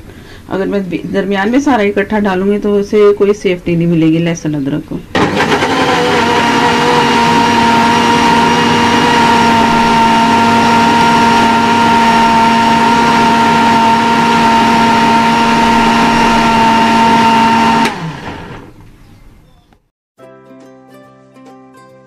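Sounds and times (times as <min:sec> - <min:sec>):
blender motor running: 0:05.2 - 0:18.8.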